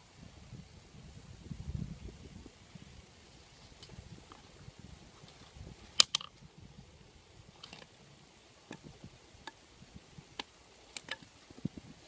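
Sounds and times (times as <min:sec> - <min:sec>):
bamboo sticks clicking and tapping: 0:06.0 - 0:06.4, 0:10.3 - 0:11.3.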